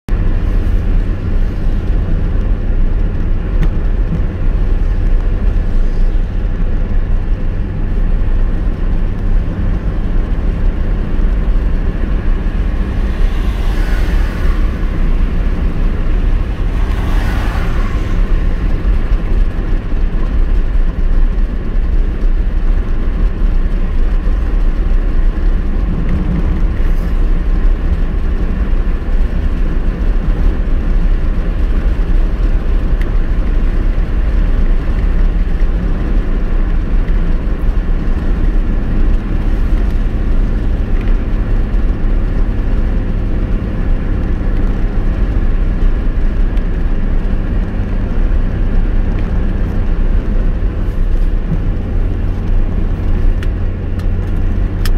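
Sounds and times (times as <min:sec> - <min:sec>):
car engine and tyre rumble: 0:00.0 - 0:54.9
rushing noise: 0:00.1 - 0:20.8.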